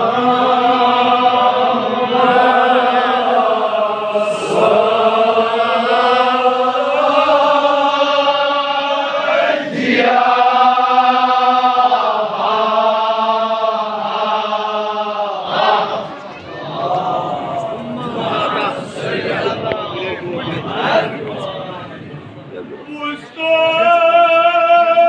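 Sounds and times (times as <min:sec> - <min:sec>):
male voices chanting: 0:00.0 - 0:21.8, 0:22.8 - 0:25.0.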